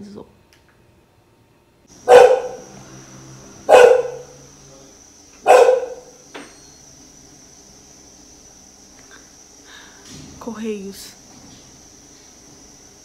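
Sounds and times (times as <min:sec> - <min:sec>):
dog barking: 0:02.0 - 0:02.8, 0:03.6 - 0:04.4, 0:05.4 - 0:06.2.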